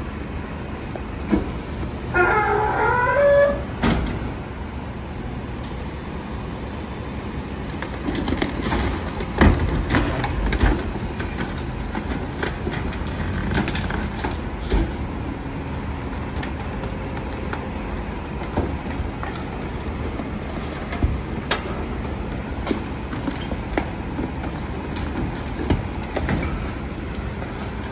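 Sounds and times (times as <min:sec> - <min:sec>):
engine and hydraulic drone: 0:00.0 - 0:27.9
short high squeals: 0:02.1 - 0:03.7, 0:16.1 - 0:17.5.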